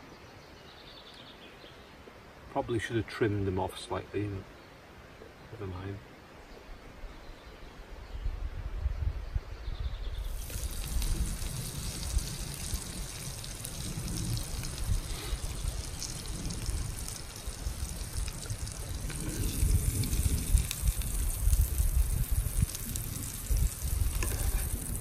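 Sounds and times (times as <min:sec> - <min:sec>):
wind rumble on microphone: 0:07.7 - 0:25.0
vegetables sizzling in a pan: 0:10.2 - 0:25.0.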